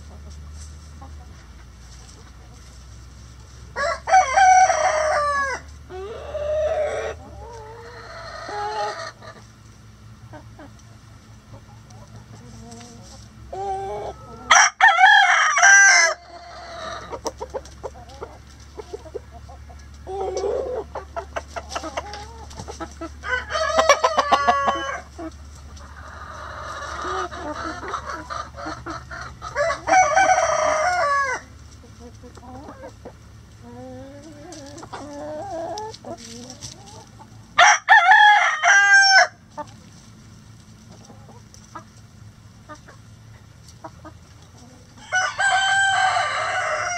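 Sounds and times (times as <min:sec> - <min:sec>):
loud drawn-out chicken calls: 0:00.0 - 0:10.8, 0:11.5 - 0:40.1, 0:40.8 - 0:46.9
chickens clucking: 0:00.0 - 0:46.9.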